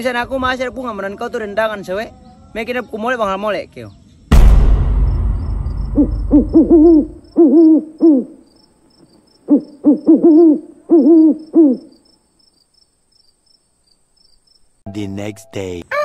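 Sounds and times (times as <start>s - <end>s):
deep boom: 4.3s - 7.3s
owl hooting: 6.0s - 8.5s, 9.4s - 12.0s.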